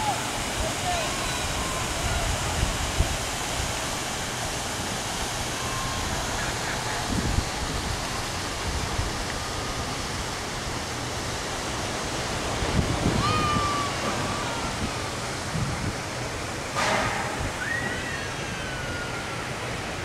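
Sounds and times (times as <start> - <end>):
surf breaking on a beach: 0.0 - 20.0.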